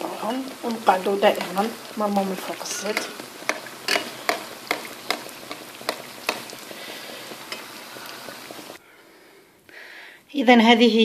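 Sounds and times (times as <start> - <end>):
flatbreads sizzling in hot oil: 0.0 - 8.8.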